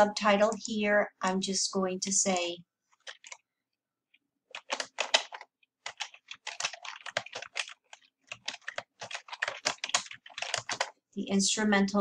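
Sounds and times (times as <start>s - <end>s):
typing on computer keyboard: 2.1s - 3.4s, 4.5s - 11.0s.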